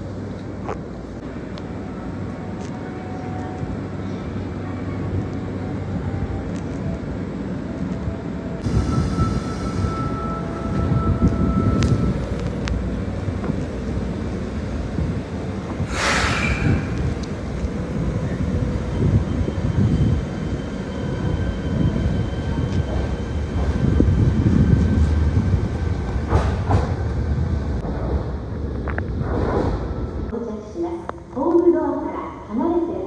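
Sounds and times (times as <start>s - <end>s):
electric train rumbling past: 0.0s - 31.0s
short sharp hiss: 15.9s - 16.7s.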